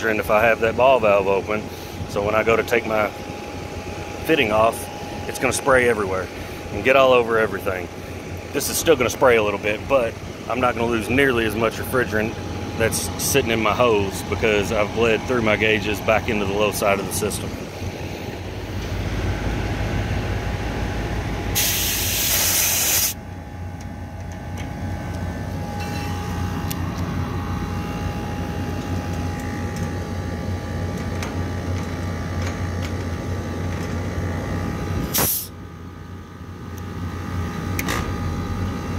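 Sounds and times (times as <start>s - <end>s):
air conditioning unit humming: 0.0s - 38.9s
refrigerant hissing: 21.6s - 23.2s, 35.1s - 35.5s.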